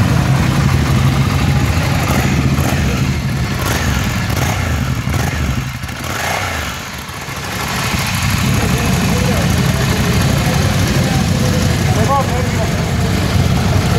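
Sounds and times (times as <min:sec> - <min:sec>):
motorcycle engine idling: 0:00.0 - 0:13.9.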